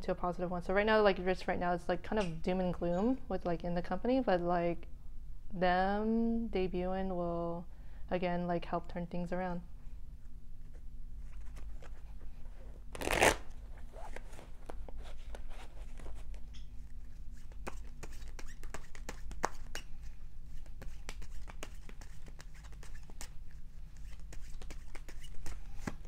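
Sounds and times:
cards being shuffled: 0:13.0 - 0:26.0.

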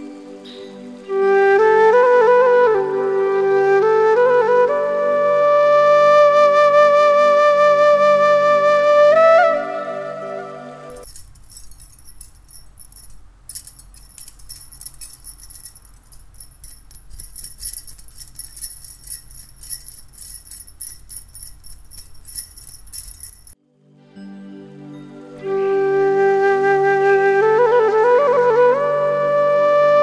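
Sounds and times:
bangles jingling and clinking: 0:11.0 - 0:23.6.

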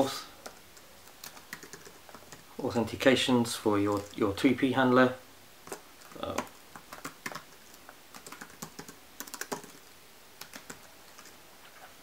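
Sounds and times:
typing on computer keyboard: 0:00.4 - 0:02.4, 0:03.9 - 0:04.2, 0:05.6 - 0:11.4.

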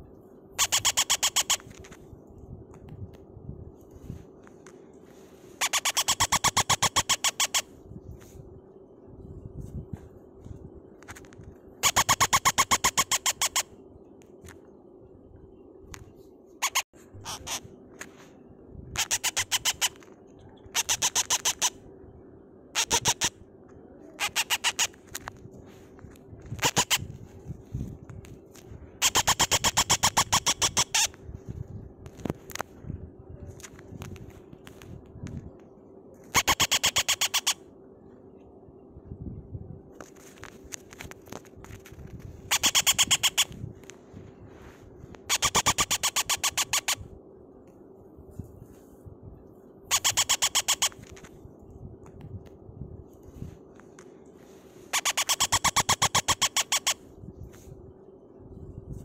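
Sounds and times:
parrot chick begging chirps: 0:00.6 - 0:01.7, 0:05.6 - 0:07.6, 0:11.8 - 0:13.6, 0:16.6 - 0:17.6, 0:19.0 - 0:20.0, 0:20.7 - 0:21.7, 0:22.8 - 0:23.3, 0:42.5 - 0:43.5, 0:49.9 - 0:51.0, 0:54.9 - 0:57.0.

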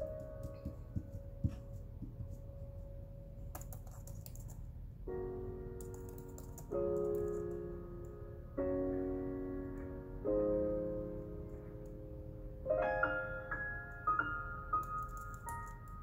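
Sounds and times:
slow piano chords: 0:00.0 - 0:16.0
typing on computer keyboard: 0:03.5 - 0:04.6, 0:05.8 - 0:07.6, 0:14.8 - 0:16.0.

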